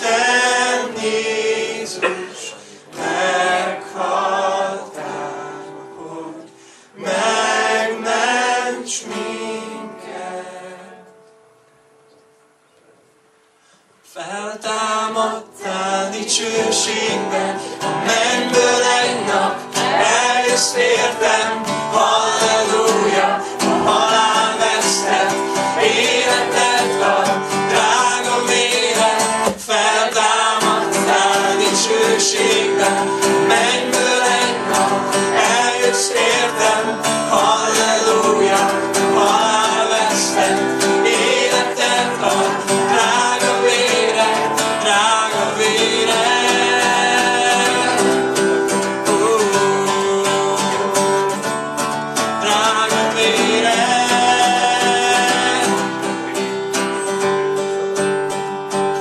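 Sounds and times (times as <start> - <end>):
man singing: 0.0 - 6.4, 14.1 - 51.4, 52.3 - 56.4
acoustic guitar strumming: 0.0 - 12.6, 14.3 - 59.0.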